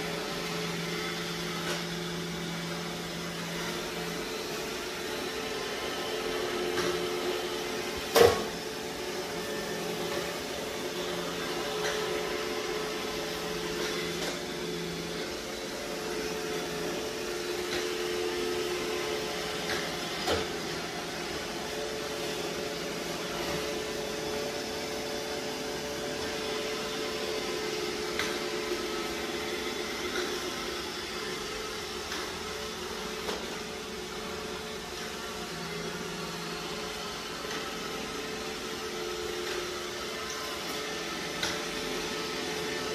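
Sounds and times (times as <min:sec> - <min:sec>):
robot vacuum humming: 0:00.0 - 0:42.9.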